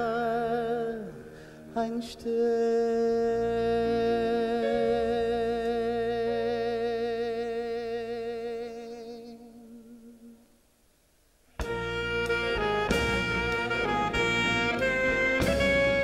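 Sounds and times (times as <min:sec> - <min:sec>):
man singing long note with vibrato: 0:00.0 - 0:10.5.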